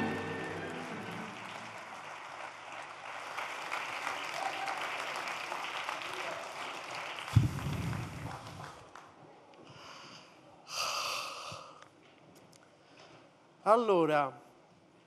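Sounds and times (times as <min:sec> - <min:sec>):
studio audience applauding: 0:00.0 - 0:09.1.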